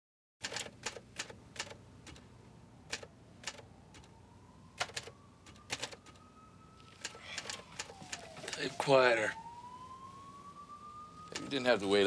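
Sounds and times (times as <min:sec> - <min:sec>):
keyboard typing: 0:02.9 - 0:06.2, 0:06.8 - 0:08.7
faint siren rising in pitch: 0:03.6 - 0:12.0.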